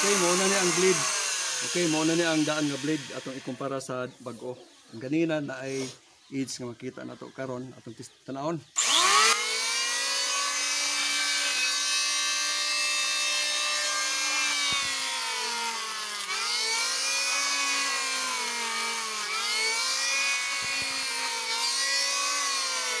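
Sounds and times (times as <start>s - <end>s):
electric hand planer whining: 0.0s - 3.4s, 8.8s - 23.0s.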